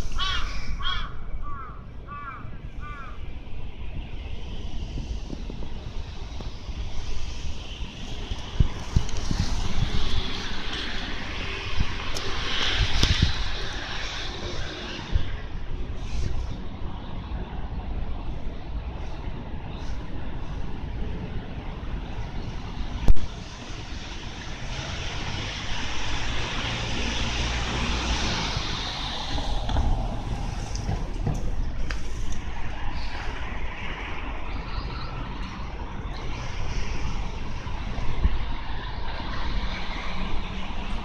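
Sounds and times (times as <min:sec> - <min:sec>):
road traffic passing: 0:00.0 - 0:41.0
vehicle passing: 0:23.6 - 0:41.0.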